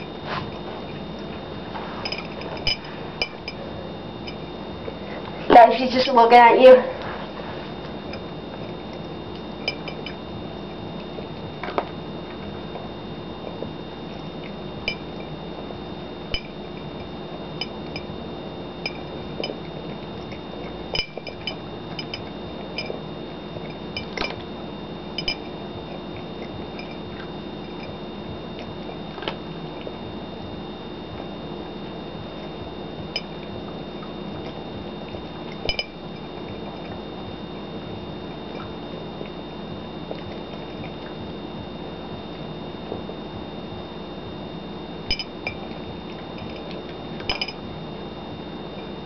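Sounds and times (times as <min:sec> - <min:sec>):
background hum: 0:00.0 - 0:49.0
cat eating from ceramic bowl: 0:02.0 - 0:03.7, 0:07.2 - 0:10.2, 0:26.2 - 0:27.9.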